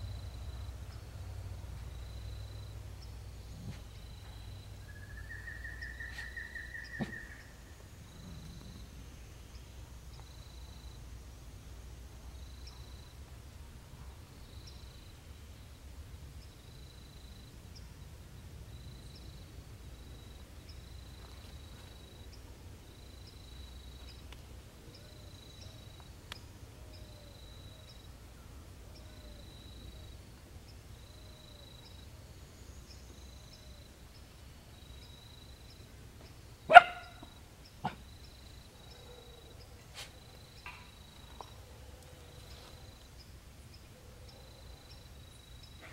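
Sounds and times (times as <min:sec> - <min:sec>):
short bark-like calls: 0:36.7 - 0:38.1.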